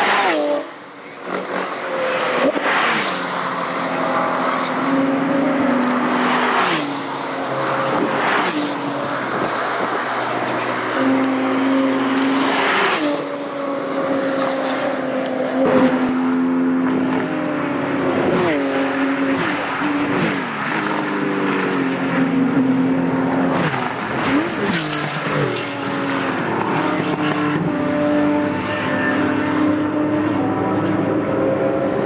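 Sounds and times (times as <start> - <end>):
race cars passing at full throttle: 0.0 - 32.0.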